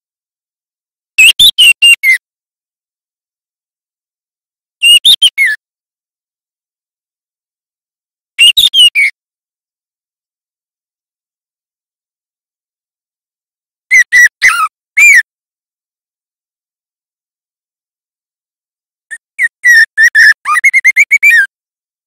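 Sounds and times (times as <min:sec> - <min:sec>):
bird whistling song: 0:01.2 - 0:02.2, 0:04.8 - 0:05.6, 0:08.4 - 0:09.2, 0:13.9 - 0:15.2, 0:19.1 - 0:21.5.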